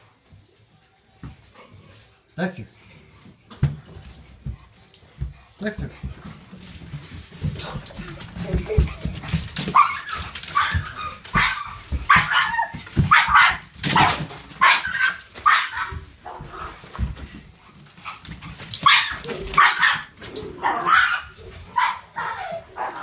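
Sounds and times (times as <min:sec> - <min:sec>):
dog barking excitedly: 0:08.8 - 0:16.4, 0:18.0 - 0:23.0.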